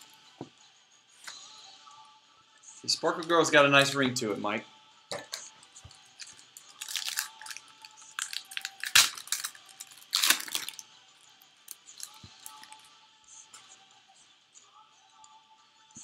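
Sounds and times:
foil wrapper crinkling and tearing: 0:06.2 - 0:10.8.

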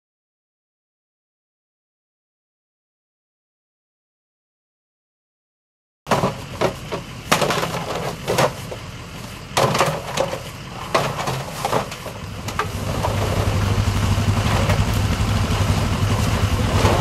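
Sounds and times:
plastic decoys clattering: 0:06.1 - 0:08.9, 0:09.6 - 0:13.2
engine idling: 0:06.1 - 0:17.0.

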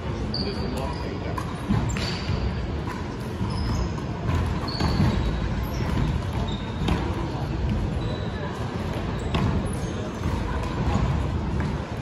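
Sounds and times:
echoing sports hall din: 0:00.0 - 0:12.0
shoes squeaking on hardwood floor: 0:00.3 - 0:10.4
ball bouncing: 0:01.3 - 0:07.8, 0:08.8 - 0:12.0.

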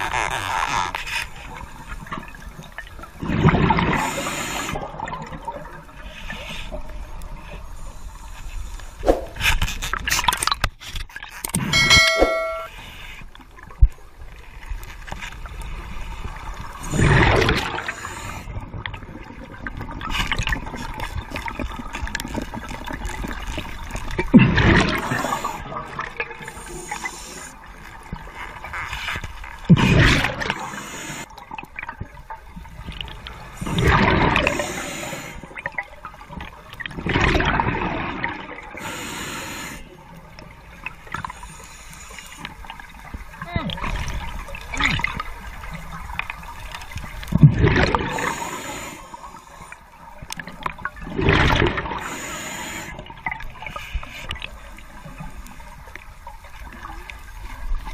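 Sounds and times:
exhaled bubbles underwater: 0:01.6 - 0:06.2, 0:15.5 - 0:28.6, 0:29.6 - 0:39.0, 0:42.6 - 0:57.9.

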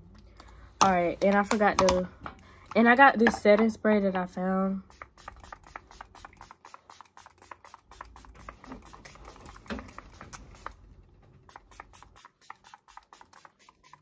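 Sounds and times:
spray bottle spritzes: 0:04.9 - 0:10.8, 0:11.5 - 0:14.0.

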